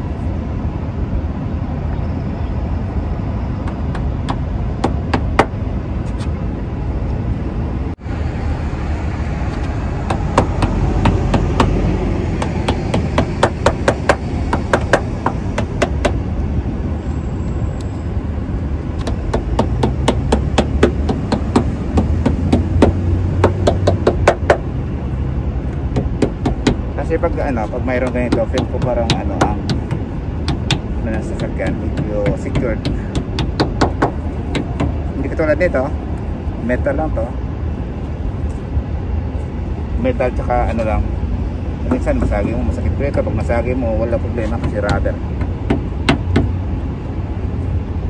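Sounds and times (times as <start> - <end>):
low background rumble: 0.0 - 48.0
sharp tapping on car door: 3.7 - 5.6, 10.0 - 16.2, 19.0 - 24.7, 25.7 - 26.9, 28.0 - 35.0, 44.5 - 46.6.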